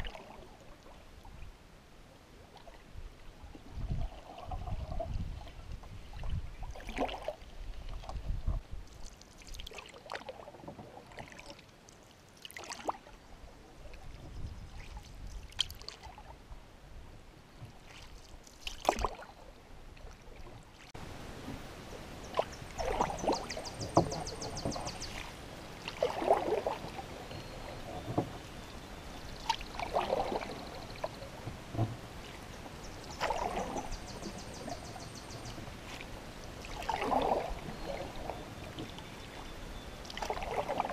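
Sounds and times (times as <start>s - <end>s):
canoe paddle splashing water: 0.0s - 1.0s, 2.5s - 13.2s, 13.8s - 16.4s, 17.7s - 40.9s.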